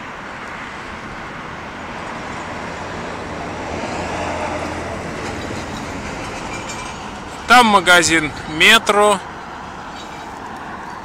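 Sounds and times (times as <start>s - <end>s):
road traffic rushing: 0.0s - 11.0s.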